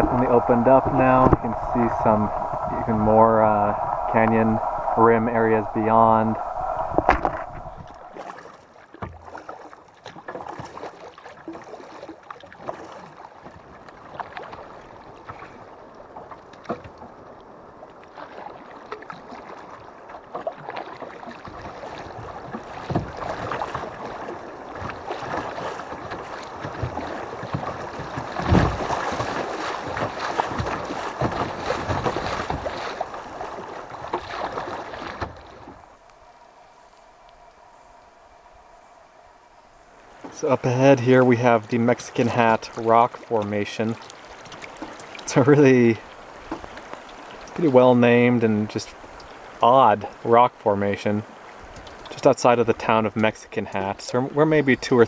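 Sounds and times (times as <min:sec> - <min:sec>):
water washing against plastic hull: 0:00.0 - 0:37.4, 0:39.9 - 0:54.5
paddle strokes splashing: 0:00.0 - 0:50.2, 0:51.0 - 0:54.6.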